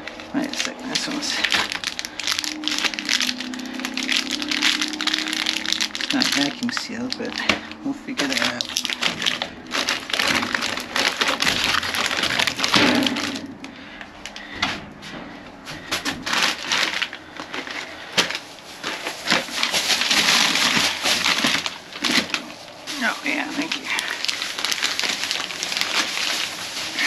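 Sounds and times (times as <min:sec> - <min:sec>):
plastic wrappers crinkling: 0:00.0 - 0:27.0.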